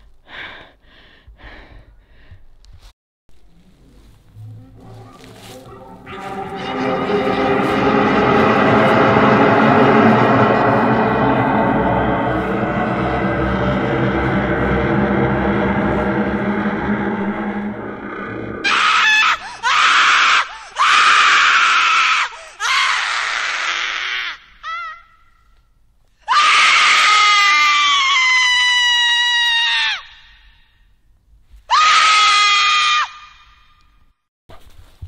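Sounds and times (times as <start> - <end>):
high-pitched human screams: 18.6 - 25.0, 26.3 - 30.1, 31.7 - 33.3.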